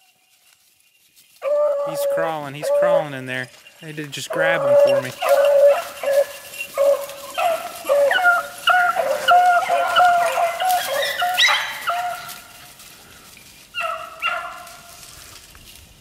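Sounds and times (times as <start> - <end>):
dog yelping: 1.4 - 3.1, 4.3 - 12.4, 13.8 - 14.8
dogs yipping and baying: 1.4 - 12.8, 13.7 - 15.0.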